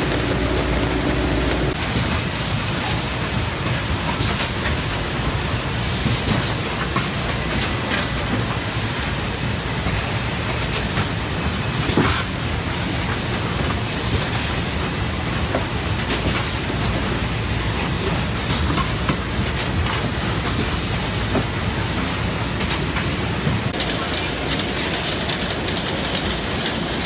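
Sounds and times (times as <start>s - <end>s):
packing machinery din: 0.0s - 1.8s.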